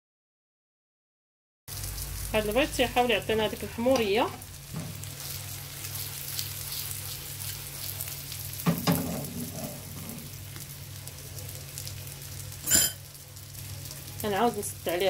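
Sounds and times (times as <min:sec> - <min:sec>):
food sizzling in a pan: 0:01.7 - 0:15.0
fork knocking on pan: 0:08.6 - 0:09.6.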